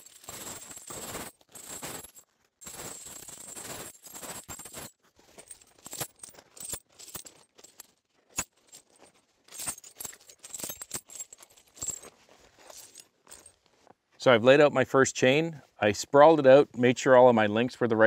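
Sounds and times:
steel chain clanking on gravel: 0.0s - 13.8s.

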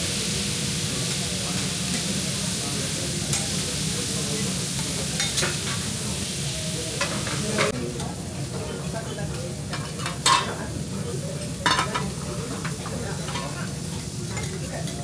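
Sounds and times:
food sizzling on a hot plate: 0.0s - 15.0s
metal spatulas clinking on griddle: 5.2s - 5.8s, 9.7s - 10.6s, 11.6s - 15.0s.

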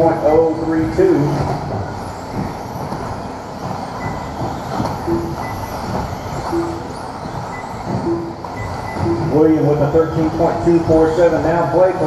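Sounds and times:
rc car motors and tyres: 0.0s - 9.0s
short beep: 6.5s - 9.4s.

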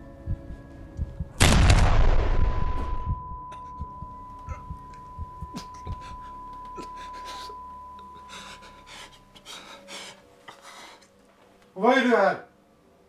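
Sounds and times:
high-pitched ringing tone: 2.8s - 9.3s
man breathing hard: 5.8s - 11.1s.

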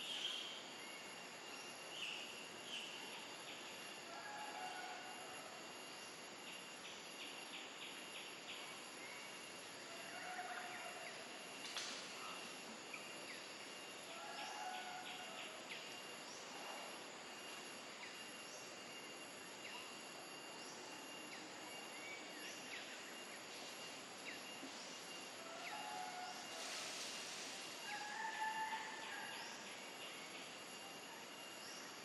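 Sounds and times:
high insect whine: 0.0s - 32.0s
soft hiss: 10.8s - 32.0s.

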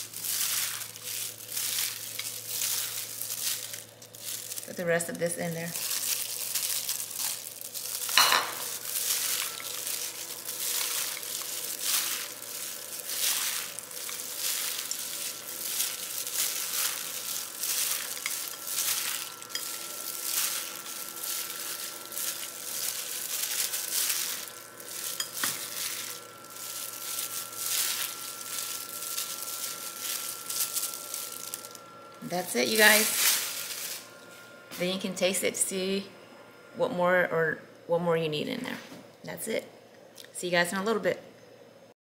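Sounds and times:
wet squishing noodle tossing: 0.0s - 31.8s, 32.7s - 34.1s.

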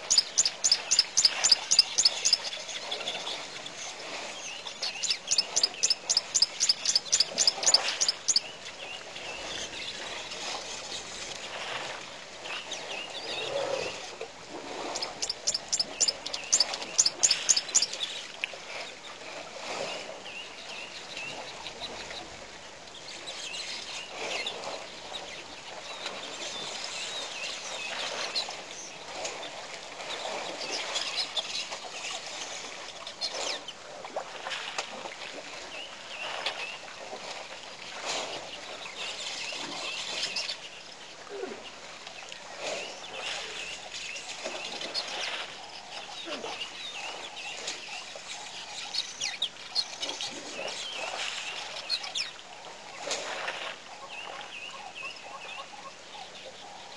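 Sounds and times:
birds chattering: 0.0s - 2.9s, 4.5s - 8.6s, 14.9s - 18.0s.

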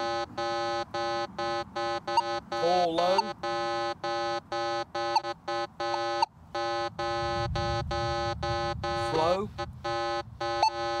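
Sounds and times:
metal detector beeping: 0.0s - 11.0s
low rumble: 6.9s - 10.8s.

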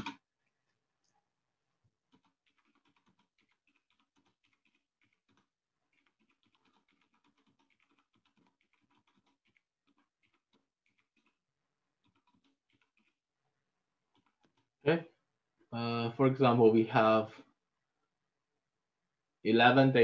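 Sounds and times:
typing on computer keyboard: 0.0s - 0.2s, 2.0s - 11.4s, 12.0s - 13.2s, 14.1s - 14.7s.

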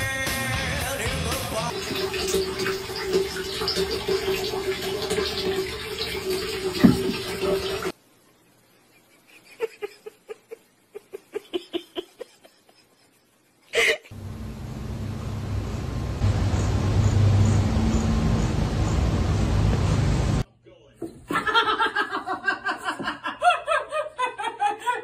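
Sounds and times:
bathwater splashing and running: 1.7s - 8.0s
steady hum: 14.1s - 20.4s.

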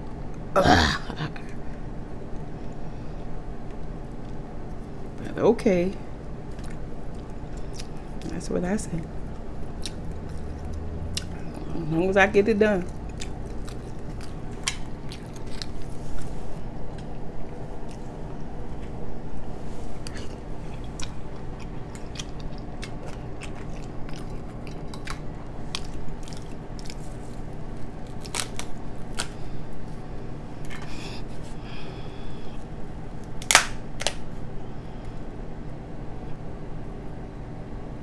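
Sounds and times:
steady low hum: 0.0s - 38.0s
chewing: 6.5s - 8.3s, 9.0s - 11.8s, 12.8s - 30.0s
crab shells cracking: 12.9s - 15.9s, 20.0s - 29.4s, 33.2s - 34.3s.

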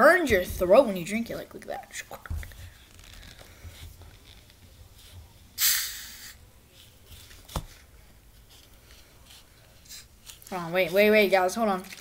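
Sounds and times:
short hiss from bottle: 5.6s - 6.4s.

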